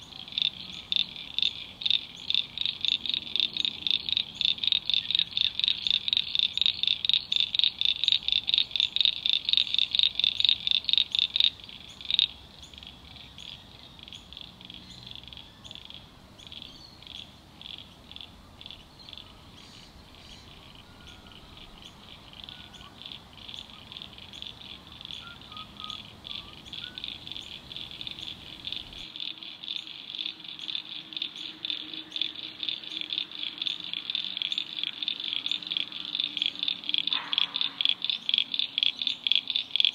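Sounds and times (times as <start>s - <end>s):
rapidly pulsing animal calls: 30.2s - 39.9s.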